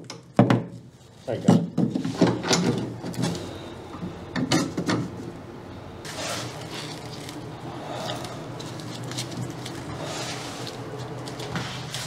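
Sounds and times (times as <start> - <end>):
panels creaking and knocking: 0.0 - 3.6
scraping rustle: 6.0 - 7.4, 8.0 - 12.0.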